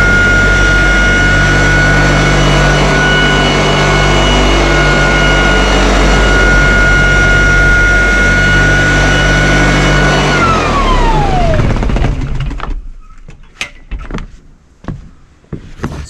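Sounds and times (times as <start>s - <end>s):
sander motor whining: 0.0s - 12.7s.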